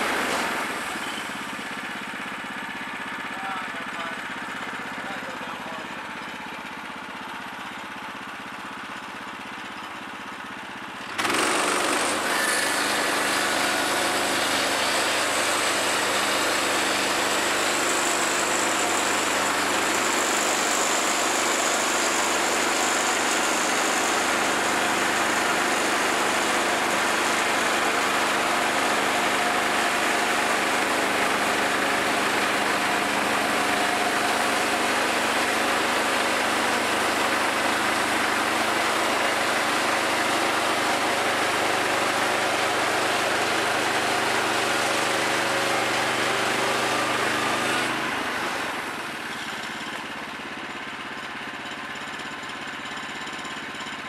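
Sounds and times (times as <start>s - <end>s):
sawmill gas engine running: 0.0s - 54.0s
band blade sawing wood: 11.2s - 49.8s.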